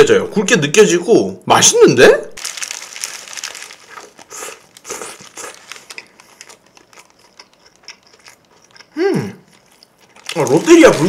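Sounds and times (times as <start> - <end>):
paper wrapper crinkling: 2.4 - 7.3, 10.0 - 11.0
person chewing: 2.4 - 11.0.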